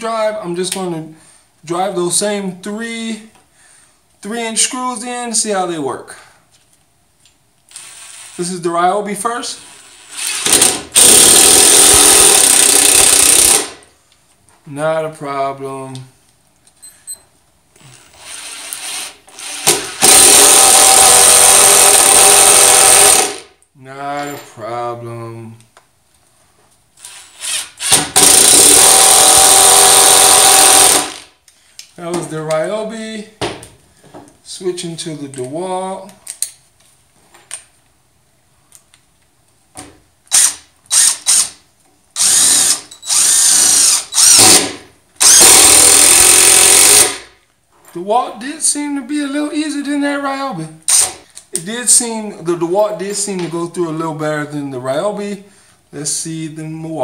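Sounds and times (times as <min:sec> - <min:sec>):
impact driver hammering screw: 0:10.1 - 0:13.8, 0:18.2 - 0:23.5, 0:27.0 - 0:31.3, 0:42.2 - 0:47.3, 0:50.9 - 0:51.2.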